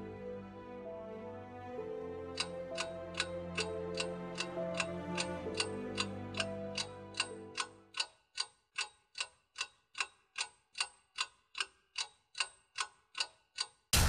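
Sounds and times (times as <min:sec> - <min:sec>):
low sustained music: 0:00.0 - 0:07.9
clock ticking: 0:02.3 - 0:14.0.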